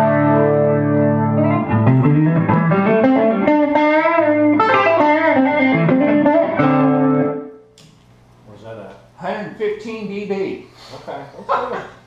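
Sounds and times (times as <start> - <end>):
electric guitar through rotary speaker: 0.0 - 7.7.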